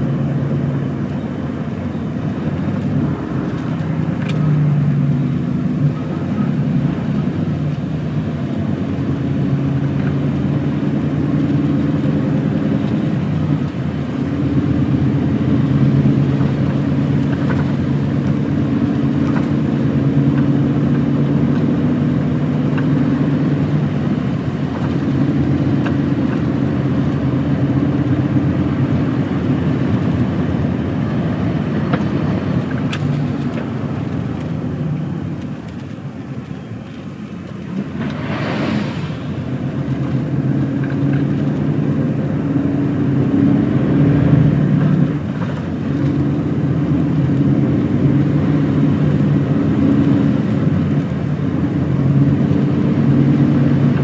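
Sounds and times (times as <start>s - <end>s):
diesel lorry engine running: 0.0s - 54.0s
short whoosh: 37.7s - 40.5s.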